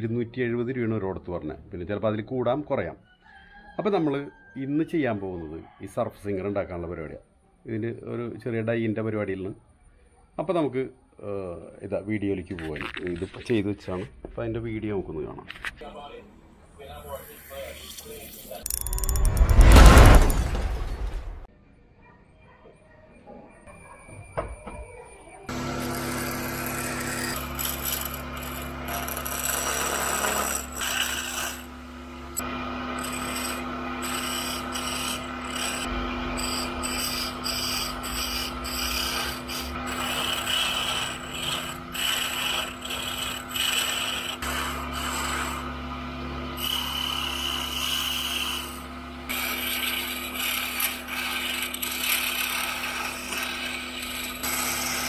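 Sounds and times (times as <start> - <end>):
chisel scraping spinning wood: 25.5 - 55.0
lathe motor hum: 25.5 - 55.0.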